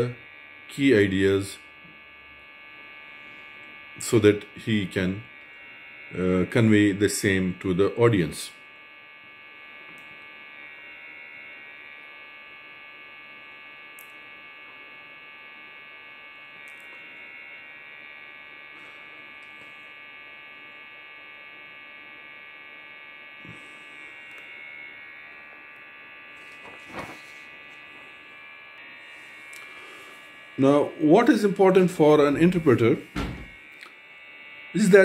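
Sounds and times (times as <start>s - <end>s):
electrical buzzing hum: 0.0s - 35.0s
high steady tones: 26.3s - 35.0s.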